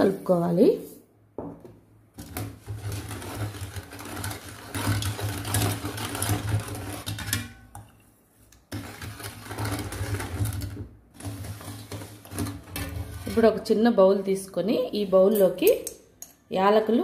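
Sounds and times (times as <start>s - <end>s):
ladle scraping steel bowl: 2.2s - 13.8s.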